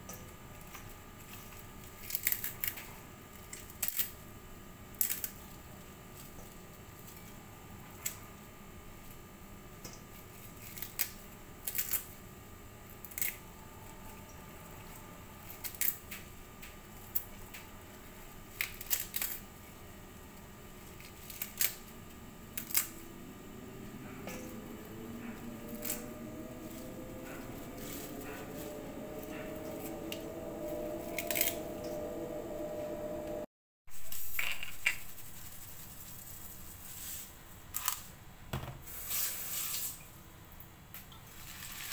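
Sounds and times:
kale leaves tearing: 1.4 - 2.8, 10.4 - 12.2, 18.5 - 19.5, 20.9 - 21.9, 22.6 - 23.0
faint rising tone: 13.3 - 15.8, 20.0 - 33.5.

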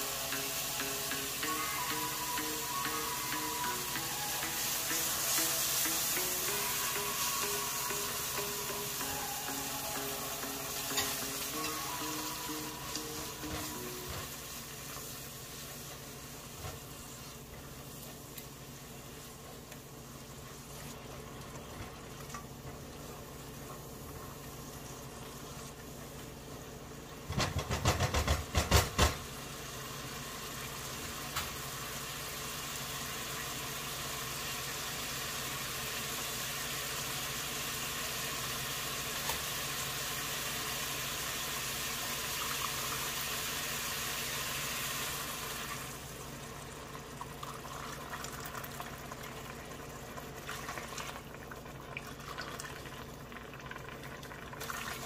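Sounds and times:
pot hissing: 0.0 - 21.3, 29.4 - 46.4
food bubbling and crackling: 45.9 - 55.0.

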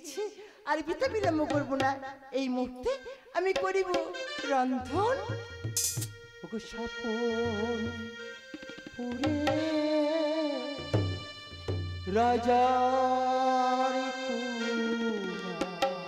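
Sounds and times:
drum strokes: 5.7 - 6.3
person singing long wavering notes: 6.4 - 8.3, 9.0 - 11.3, 12.0 - 16.0.

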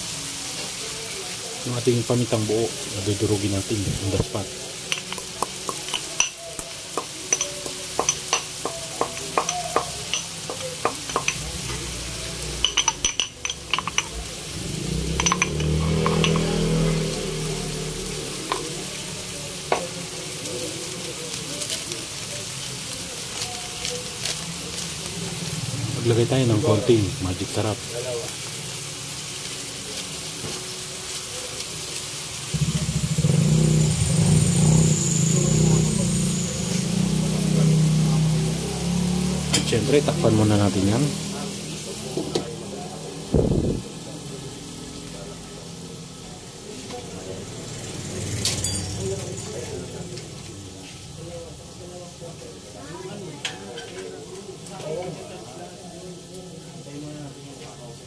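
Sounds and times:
beans sizzling in a wok: 0.0 - 58.0
pestle grinding peppercorns: 4.9 - 17.4
pestle tapping in stone mortar: 5.0 - 6.3, 7.0 - 11.4.

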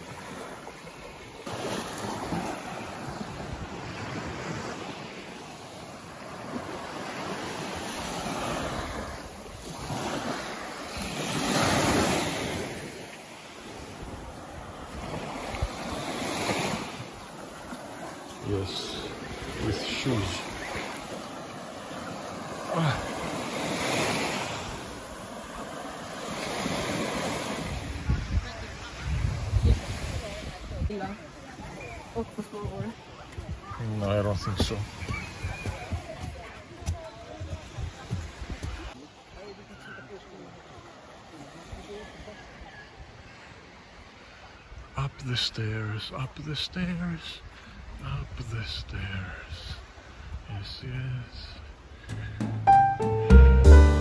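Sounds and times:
waves washing onto shore: 0.0 - 53.6
wind on microphone: 27.6 - 31.0.

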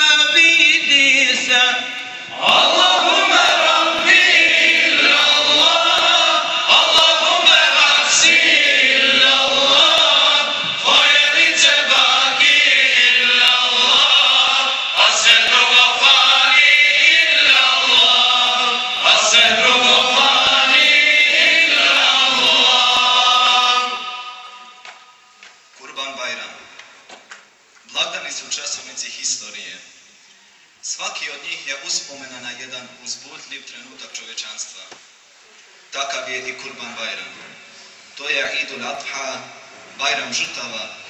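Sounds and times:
men singing a hymn: 0.0 - 24.8.

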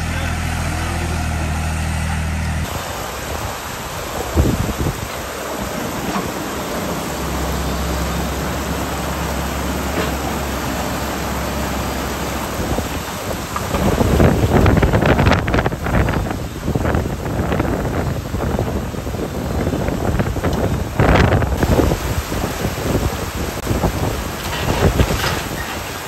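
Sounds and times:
low hum: 0.0 - 4.1
rushing wind: 2.5 - 26.0
wind buffeting the microphone: 2.6 - 26.0.

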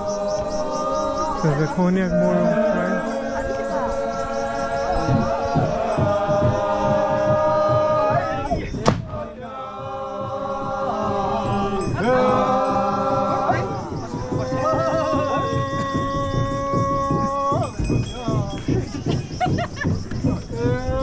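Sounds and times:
men chanting in held notes: 0.0 - 18.7.

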